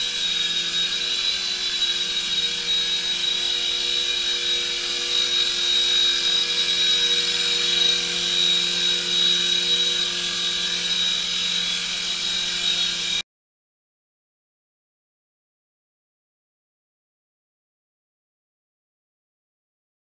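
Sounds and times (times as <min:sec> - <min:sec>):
toy helicopter rotors whining: 0:00.0 - 0:13.2.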